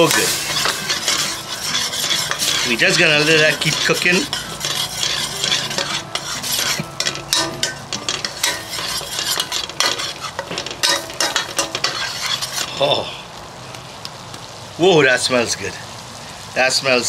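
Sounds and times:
metal spoon scraping a pan: 0:00.0 - 0:12.8
curry sizzling: 0:00.0 - 0:17.0.

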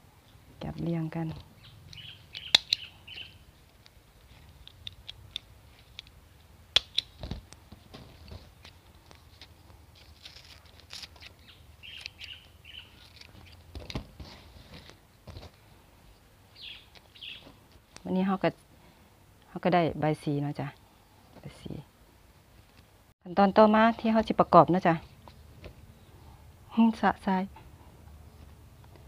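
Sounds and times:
small birds chirping: 0:00.6 - 0:03.6, 0:11.2 - 0:13.7, 0:16.5 - 0:18.2
leaves rustling: 0:00.7 - 0:18.2
sharp clicks: 0:01.9 - 0:02.9.

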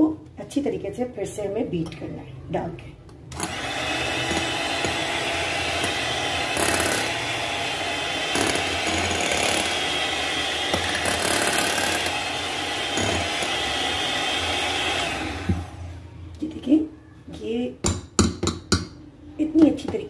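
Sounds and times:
electric hand mixer whipping: 0:03.4 - 0:16.0.

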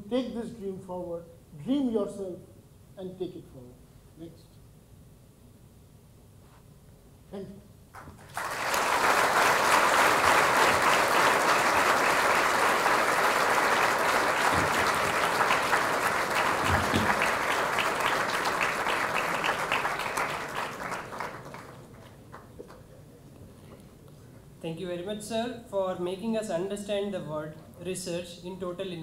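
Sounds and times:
large audience applauding: 0:08.0 - 0:22.8.

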